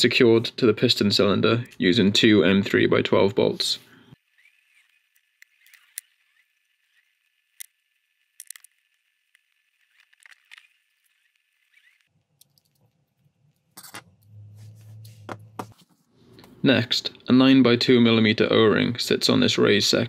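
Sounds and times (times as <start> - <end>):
low hum: 10.6 - 15.7
faint clicks and taps of parts: 12.3 - 13.9.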